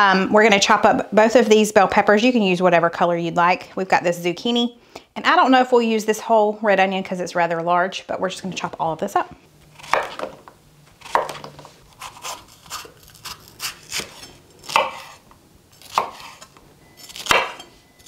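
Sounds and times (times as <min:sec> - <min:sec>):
knife chopping on wooden board: 0:09.8 - 0:10.4, 0:11.0 - 0:15.2, 0:15.8 - 0:16.5, 0:17.1 - 0:17.7.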